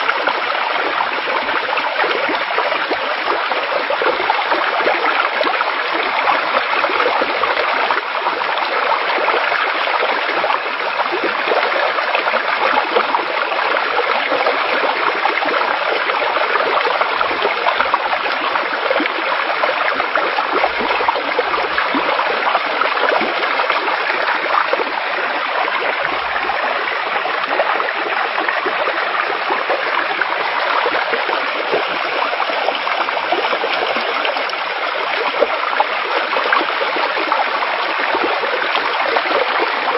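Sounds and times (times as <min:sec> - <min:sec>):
floodwater rushing: 0:11.3 - 0:39.9.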